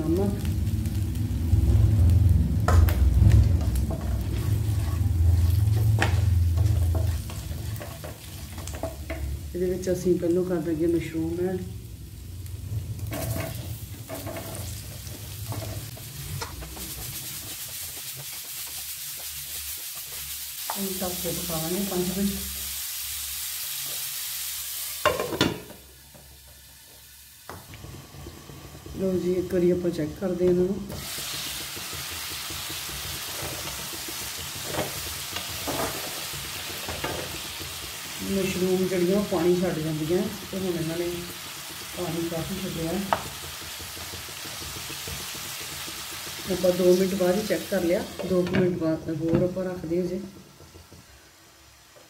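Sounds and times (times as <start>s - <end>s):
low rumble: 0.0s - 17.4s
spices frying in oil: 0.0s - 52.0s
wooden spatula scraping pan: 3.6s - 9.3s, 13.0s - 20.4s.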